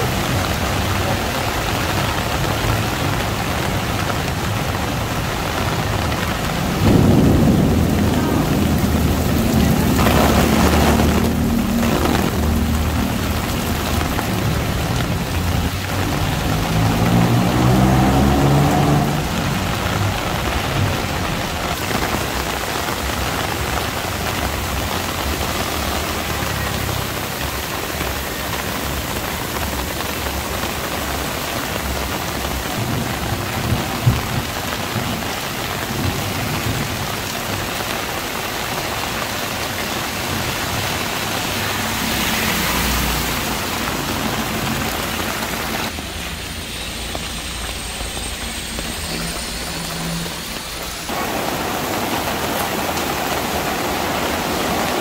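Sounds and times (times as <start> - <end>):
rain falling on street: 0.0 - 55.0.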